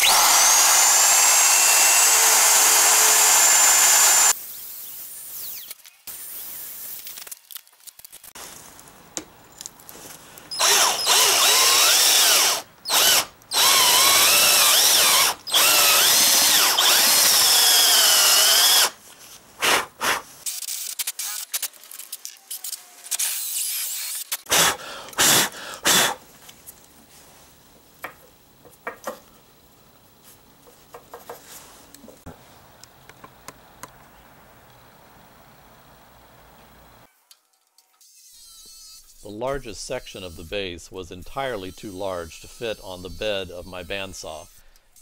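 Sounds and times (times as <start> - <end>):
power drill boring into wood: 0.0 - 4.4, 10.5 - 19.0, 22.7 - 26.2.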